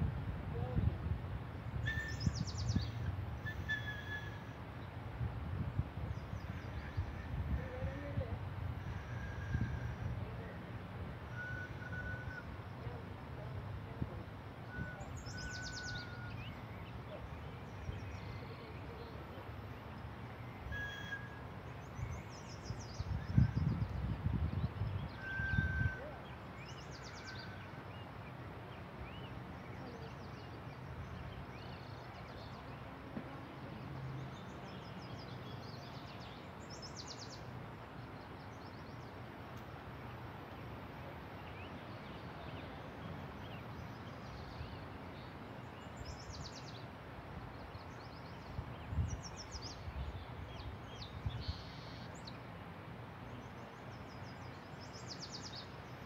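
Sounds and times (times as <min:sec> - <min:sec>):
birds calling in short trills: 0:14.7 - 0:18.9.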